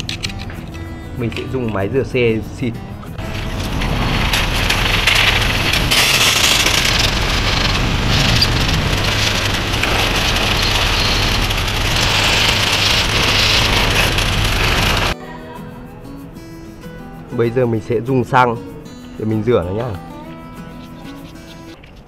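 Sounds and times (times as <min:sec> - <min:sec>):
low hum: 0:03.0 - 0:15.2.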